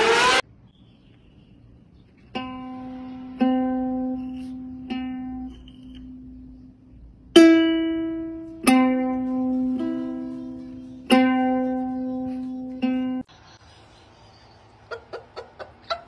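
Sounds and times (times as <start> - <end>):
ukulele notes plucked: 2.4 - 6.6, 7.3 - 13.2.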